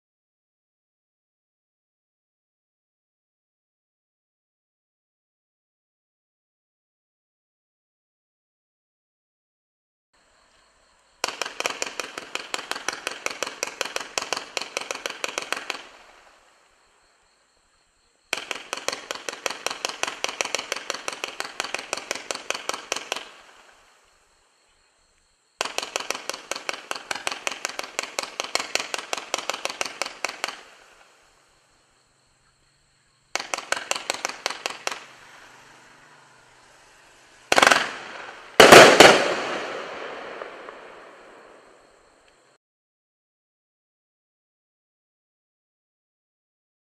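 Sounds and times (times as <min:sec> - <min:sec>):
rapid-fire firework pops: 0:11.2 - 0:16.3, 0:18.3 - 0:23.7, 0:25.6 - 0:31.1, 0:33.3 - 0:35.2, 0:37.5 - 0:40.8
loud firework bursts: 0:11.2 - 0:16.8, 0:18.3 - 0:24.2, 0:25.6 - 0:31.7, 0:33.2 - 0:41.9.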